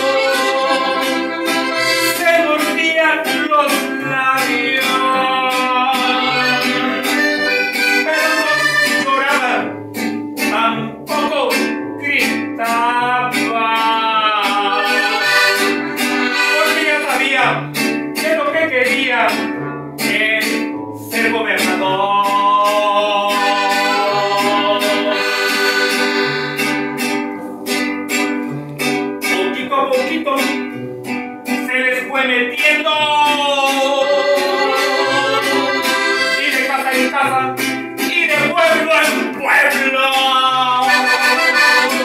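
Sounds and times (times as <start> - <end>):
piano accordion: 0.0 - 2.3, 6.2 - 9.1, 14.7 - 17.0, 23.6 - 26.9, 34.2 - 36.8, 40.9 - 42.0
man singing: 0.0 - 26.7, 29.2 - 30.8, 31.4 - 42.0
strummed acoustic guitar: 0.0 - 42.0.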